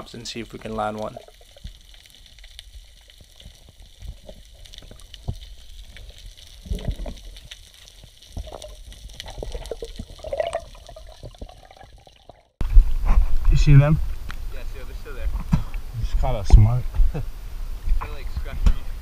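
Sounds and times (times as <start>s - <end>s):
water sloshing at surface: 8.3s - 12.5s.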